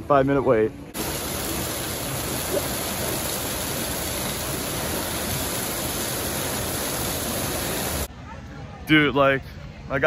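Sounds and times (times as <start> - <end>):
churning white water rushing: 1.0 - 8.1.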